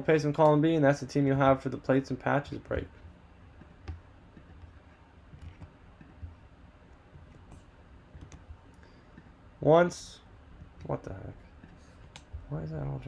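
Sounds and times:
computer keys and mouse clicking: 0:07.2 - 0:08.5.

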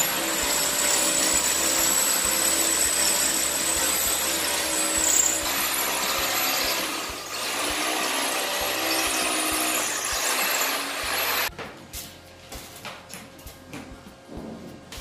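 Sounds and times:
electric drill boring into concrete: 0:00.0 - 0:11.5.

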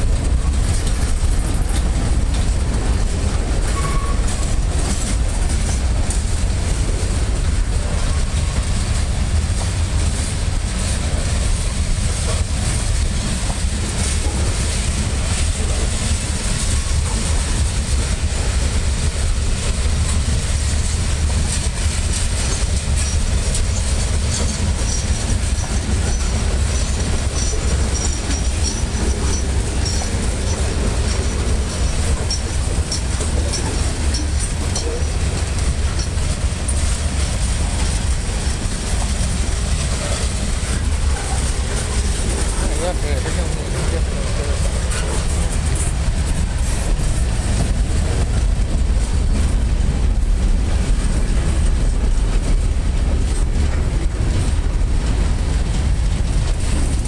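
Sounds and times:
freight train rumbling past: 0:00.0 - 0:57.0
wheel and rail clatter: 0:00.0 - 0:57.0
high wheel squeal: 0:03.6 - 0:04.5.

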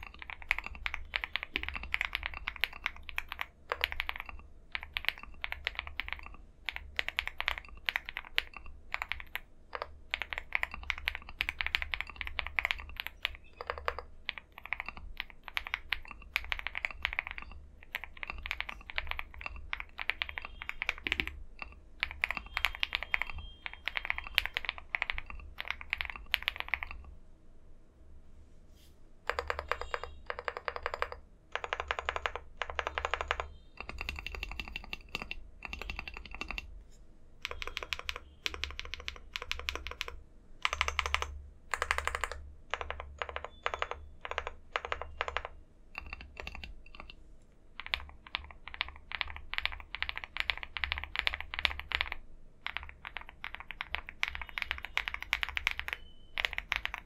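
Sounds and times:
mechanical keyboard typing: 0:00.0 - 0:27.2, 0:29.3 - 0:36.8, 0:37.4 - 0:57.0.

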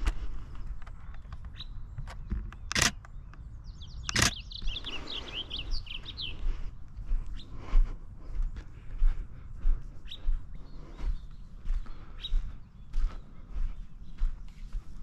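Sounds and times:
songbird chirping: 0:00.0 - 0:15.0
sharp clicks: 0:00.7 - 0:04.4.

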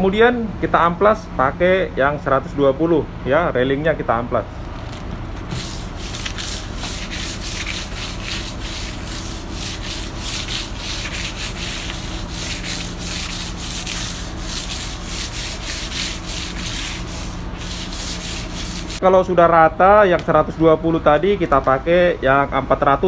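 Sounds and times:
sandpaper scratching on wood: 0:05.5 - 0:19.0.

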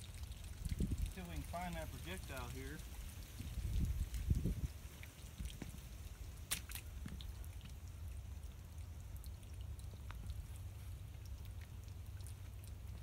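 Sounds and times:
wind rumble on microphone: 0:00.1 - 0:01.7, 0:02.6 - 0:06.3.

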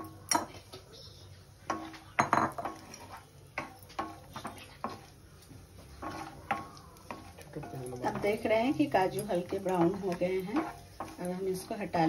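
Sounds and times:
wooden spatula knocking a frying pan: 0:01.7 - 0:05.1, 0:05.8 - 0:12.0.

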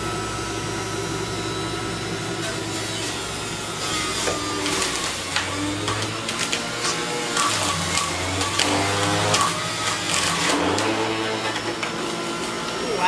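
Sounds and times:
juicer motor hum and whine: 0:00.0 - 0:13.0
celery being shredded: 0:02.5 - 0:12.8.

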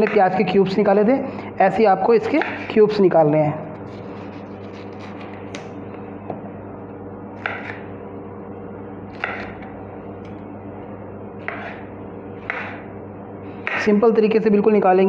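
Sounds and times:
knife cutting pepper on wooden board: 0:07.4 - 0:07.8, 0:09.1 - 0:09.6, 0:11.4 - 0:11.8, 0:12.4 - 0:12.8.

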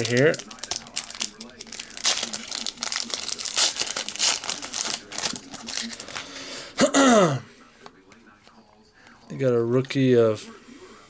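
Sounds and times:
foil wrapper tearing and crinkling: 0:00.0 - 0:06.3.

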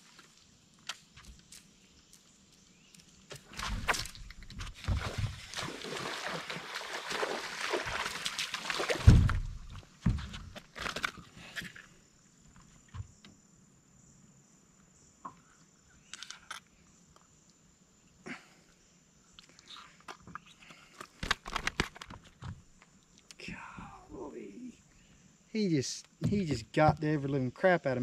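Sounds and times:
fish thrashing and splashing: 0:04.8 - 0:09.5.

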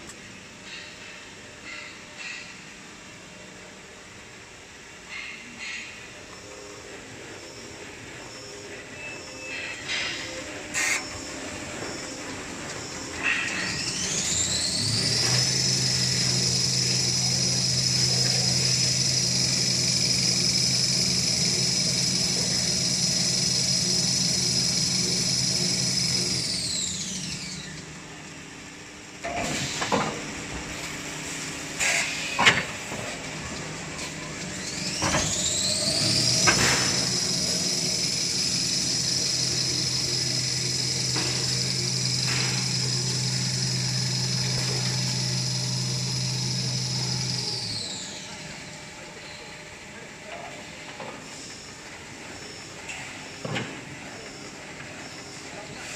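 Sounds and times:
motor whining: 0:12.8 - 0:27.9, 0:34.4 - 0:48.7.

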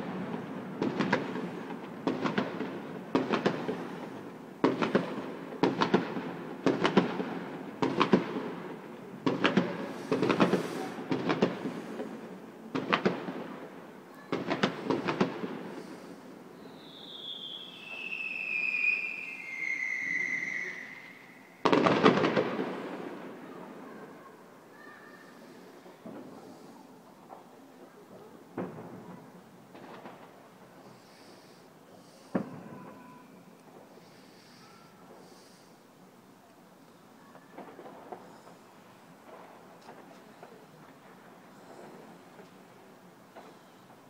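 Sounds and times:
firework bangs: 0:00.0 - 0:24.0, 0:28.5 - 0:35.8, 0:37.3 - 0:44.0
firework whistles falling in pitch: 0:16.6 - 0:22.2.

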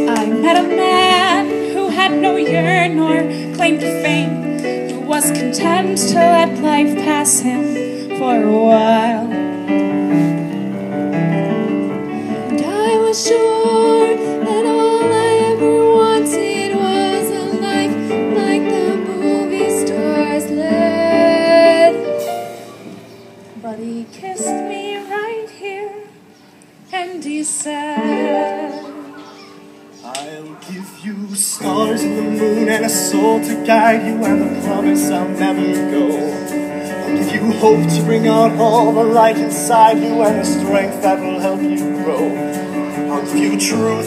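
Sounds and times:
woman singing with vibrato: 0:00.0 - 0:09.4, 0:12.4 - 0:22.1, 0:23.6 - 0:26.3, 0:26.9 - 0:29.4
keyboard accompaniment: 0:00.0 - 0:44.0.

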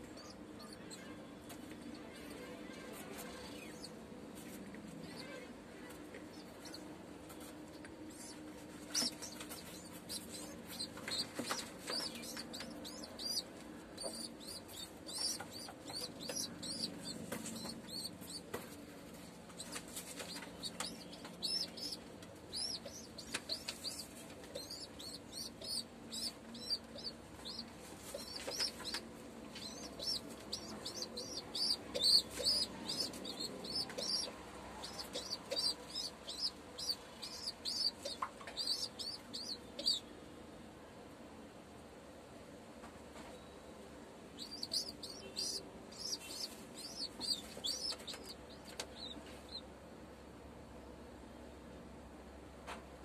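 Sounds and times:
pigeon squab squeaking: 0:08.9 - 0:18.5, 0:19.6 - 0:40.0, 0:44.4 - 0:48.4.

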